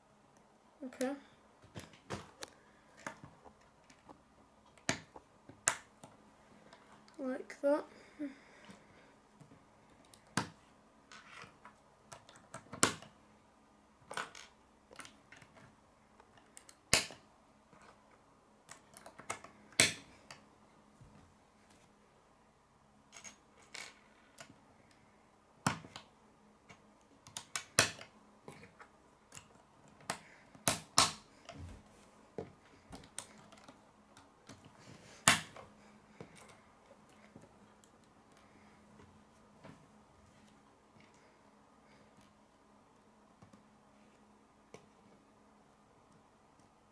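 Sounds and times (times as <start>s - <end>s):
plastic pieces snapping: 16.5s - 17.2s, 26.7s - 28.1s.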